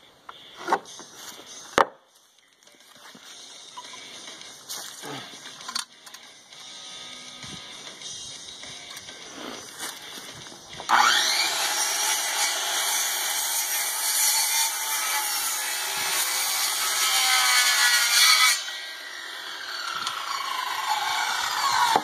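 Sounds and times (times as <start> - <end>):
circular saw cutting wood: 10.9 - 22.0.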